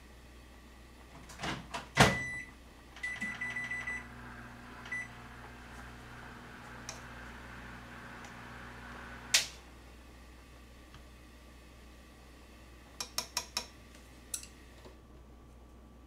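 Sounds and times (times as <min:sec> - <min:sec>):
microwave humming: 0:00.0 - 0:16.0
microwave door shutting: 0:01.2 - 0:02.4
keypad beeps: 0:02.1 - 0:04.0, 0:04.9 - 0:05.1.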